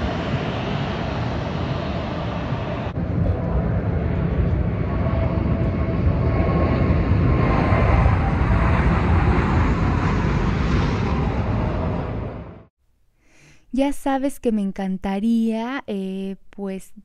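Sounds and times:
jet airliner passing overhead: 0.0 - 12.7.

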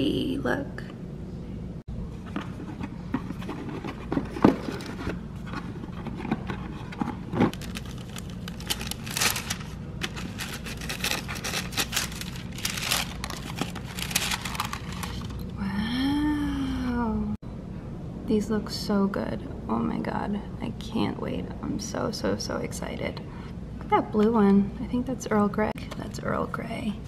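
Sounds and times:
tissue paper rustling and crinkling: 6.4 - 15.4.

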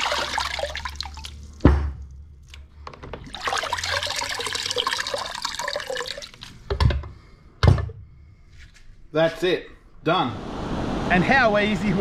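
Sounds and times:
water splashing into plastic basin: 0.0 - 2.6, 3.2 - 6.7
thump: 1.6 - 2.0.

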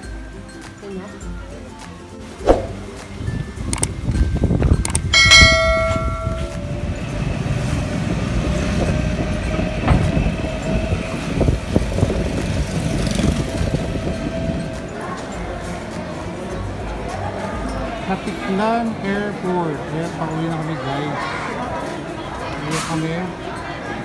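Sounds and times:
road rumble and rattle: 2.4 - 17.7
bell-like chime: 5.2 - 6.8.

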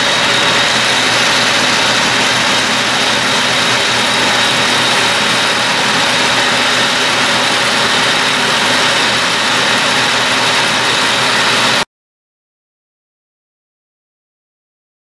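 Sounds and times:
metal lathe running: 0.0 - 11.8.

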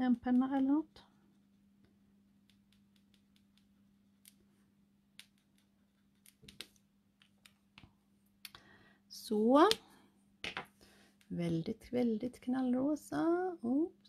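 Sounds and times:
low steady hum: 0.0 - 14.0
marker clicking on paper: 2.5 - 4.4, 5.2 - 7.6.

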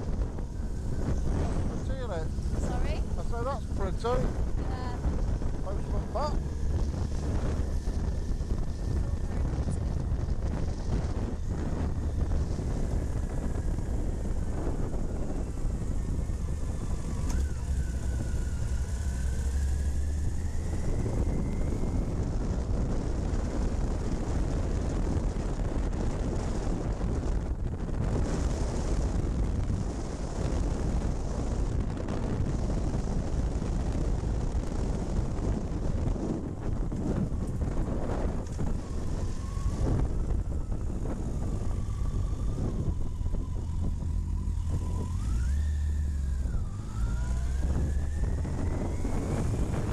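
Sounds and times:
motorcycle engine and wind rush: 0.0 - 49.9.

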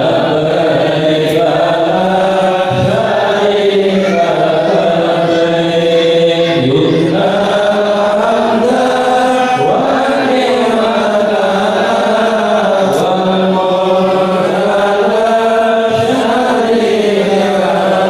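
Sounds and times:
men chanting in unison: 0.0 - 18.0.

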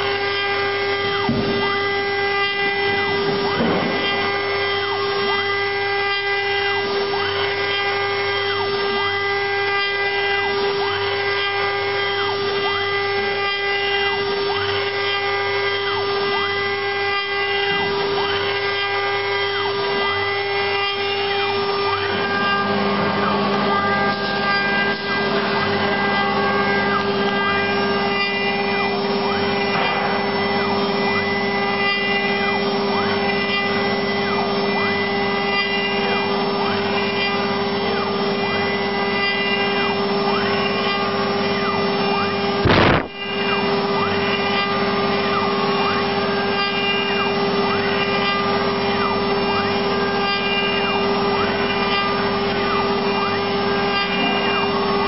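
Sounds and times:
axis motors whirring: 0.0 - 55.0
router spindle whining: 0.0 - 55.0.

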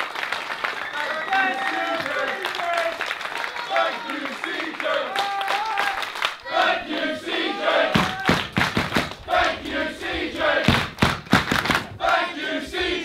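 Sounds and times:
crowd chanting: 1.2 - 13.0
loud thumps: 10.6 - 12.0.

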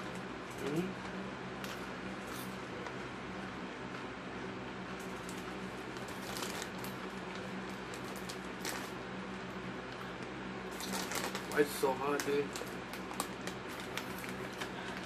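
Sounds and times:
steady low hum: 0.0 - 15.0
chip bag crinkling: 5.0 - 9.0, 9.8 - 15.0.

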